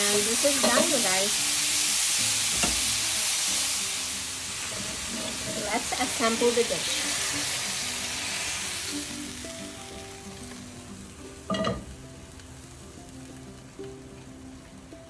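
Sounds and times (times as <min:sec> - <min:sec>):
mushrooms sizzling in a pan: 0:00.0 - 0:15.0
soft background music: 0:00.0 - 0:15.0.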